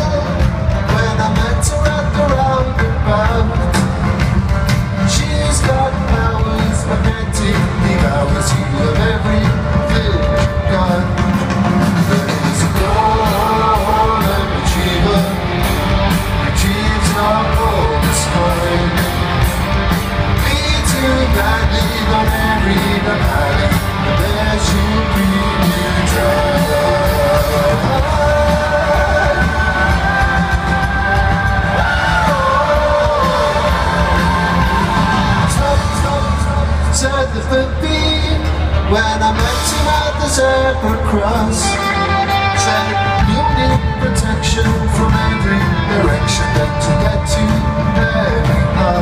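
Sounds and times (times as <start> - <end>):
drum beat: 0.0 - 37.0
live rock band playing: 0.0 - 49.0
people singing and yelling: 0.0 - 49.0.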